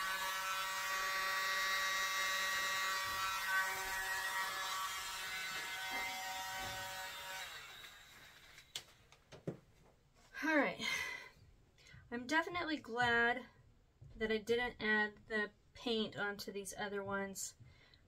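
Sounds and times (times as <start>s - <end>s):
electric leaf blower whine: 0.0s - 8.8s.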